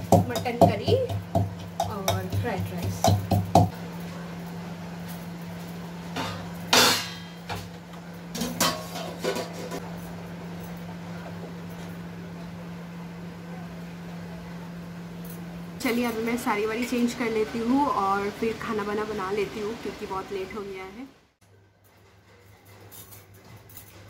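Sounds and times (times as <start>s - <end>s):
steady low hum: 0.0s - 21.4s
metal pots and lids clanking: 6.1s - 9.8s.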